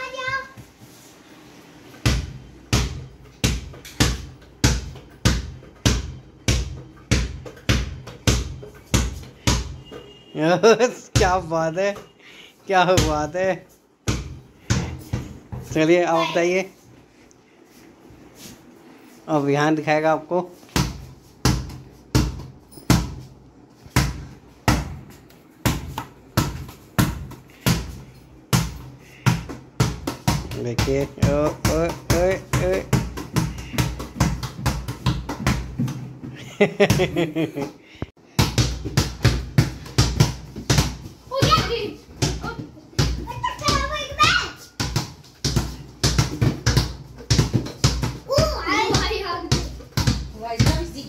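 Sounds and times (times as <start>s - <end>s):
ball bouncing on hard floor: 2.0s - 10.2s, 11.1s - 12.1s, 12.9s - 13.4s, 14.0s - 15.8s, 20.7s - 23.3s, 23.9s - 37.7s, 38.4s - 51.0s.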